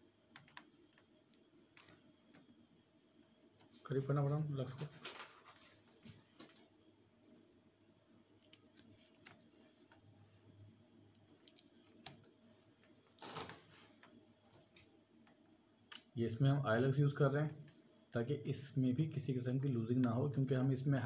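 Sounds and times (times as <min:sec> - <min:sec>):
small clicks of handled wiring: 0:00.4 - 0:02.5, 0:08.4 - 0:10.1, 0:11.1 - 0:16.1
clothing rustle: 0:03.7 - 0:06.8, 0:12.4 - 0:14.8.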